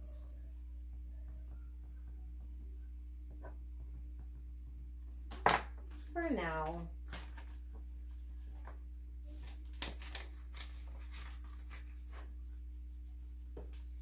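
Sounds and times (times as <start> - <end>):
steady low hum: 0.0 - 14.0
paper rustling: 7.0 - 12.9.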